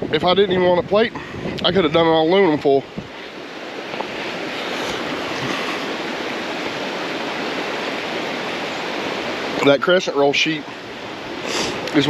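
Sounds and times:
creek water rushing: 0.0s - 12.0s.

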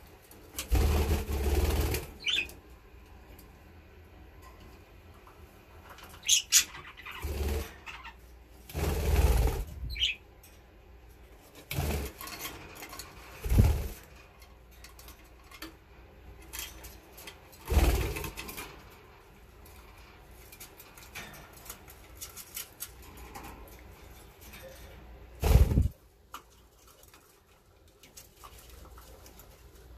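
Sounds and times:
budgerigars flapping wings: 25.4s - 26.0s.

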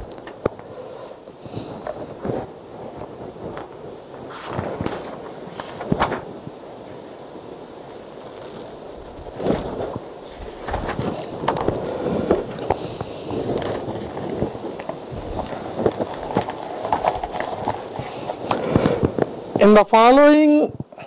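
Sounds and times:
book pages rustling: 8.3s - 19.4s.

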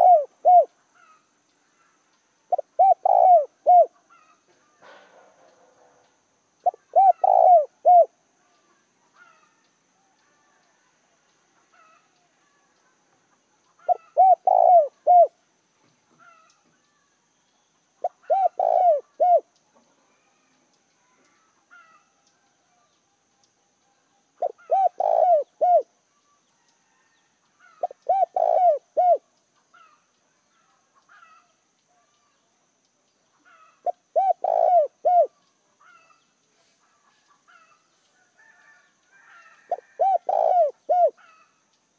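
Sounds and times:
dove cooing: 0.0s - 1.2s, 2.5s - 5.2s, 6.6s - 8.2s, 13.8s - 15.4s, 18.0s - 19.5s, 24.4s - 25.9s, 27.6s - 30.0s, 33.4s - 36.2s, 38.4s - 41.6s
small birds chirping: 0.0s - 41.9s.

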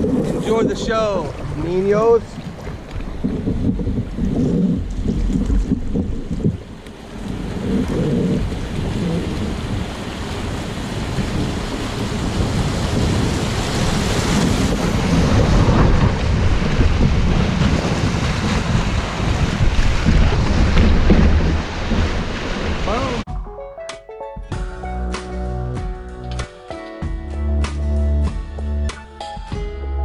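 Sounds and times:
rushing whitewater: 0.0s - 23.2s
wind rumble on microphone: 0.0s - 23.2s.

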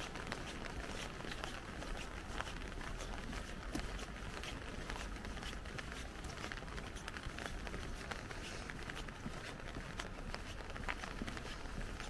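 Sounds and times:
raindrops tapping umbrella: 0.0s - 12.0s.

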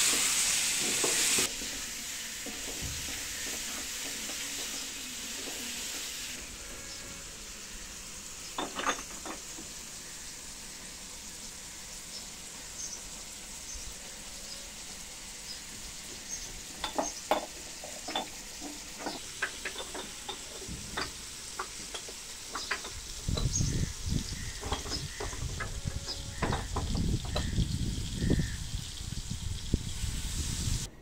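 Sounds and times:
small birds chirping: 10.0s - 14.7s, 15.4s - 17.4s, 22.5s - 27.6s
wind rumble on microphone: 23.1s - 30.9s.

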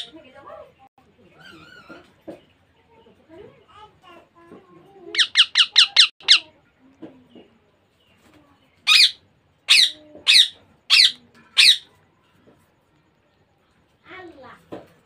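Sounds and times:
parakeet squeaking and squawking: 5.1s - 6.5s, 8.8s - 11.9s.

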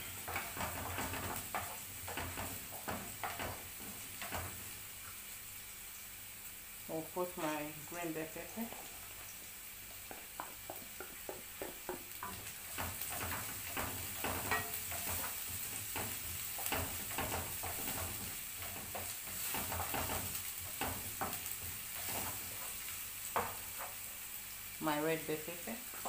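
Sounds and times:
spatula scraping a pan: 0.0s - 4.8s, 12.2s - 24.0s
vegetables sizzling in a frying pan: 0.0s - 26.0s.

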